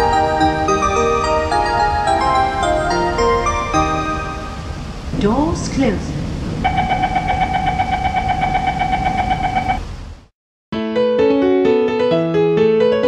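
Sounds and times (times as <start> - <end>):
electric piano music: 0.0 - 4.9, 10.8 - 13.0
train interior rumble: 0.0 - 10.3
rapidly pulsing high beep: 6.7 - 9.8.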